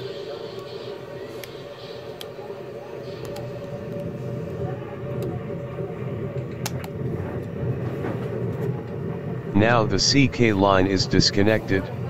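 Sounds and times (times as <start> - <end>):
low rumble and hum: 2.6 - 12.0.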